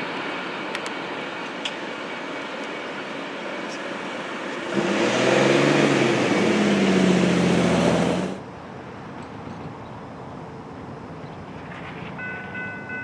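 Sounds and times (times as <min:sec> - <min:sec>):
tyre noise on road: 0:00.0 - 0:13.0
minivan driving past: 0:04.6 - 0:08.4.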